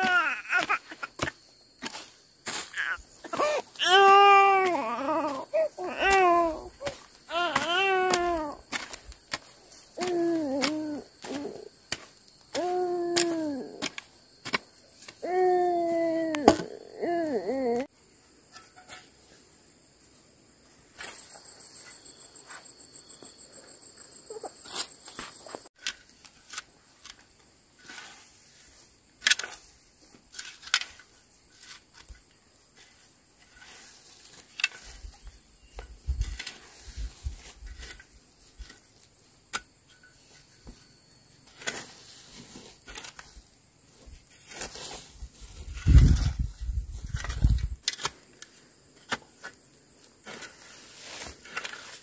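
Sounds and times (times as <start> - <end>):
shovel chopping and scraping soil: 0.0 - 15.3, 18.4 - 19.5, 24.4 - 52.0
insect trilling: 0.0 - 17.9, 21.1 - 25.7.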